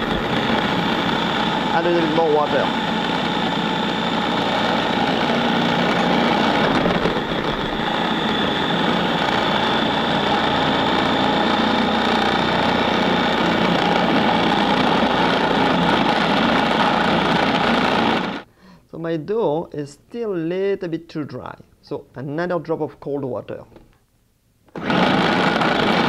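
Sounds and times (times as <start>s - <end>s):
food processor churning dough: 0.0s - 18.5s, 24.7s - 26.0s.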